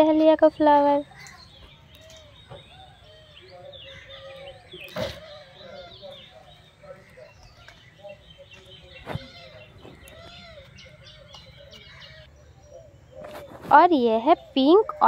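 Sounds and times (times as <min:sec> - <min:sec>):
birds chirping and calling: 0:00.0 - 0:15.0.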